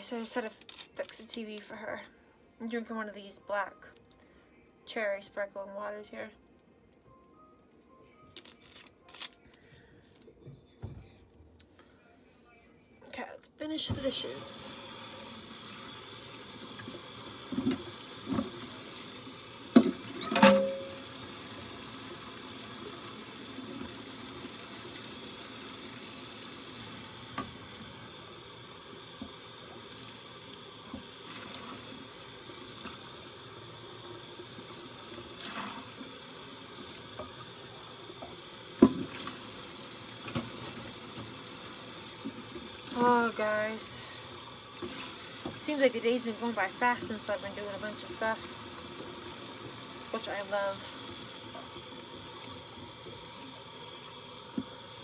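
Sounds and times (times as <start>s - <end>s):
tap running into sink: 16.7s - 19.1s, 19.7s - 21.7s, 29.1s - 30.0s, 30.8s - 32.0s, 36.8s - 43.0s, 54.5s - 54.8s
dishes knocking and clinking: 19.8s - 21.0s.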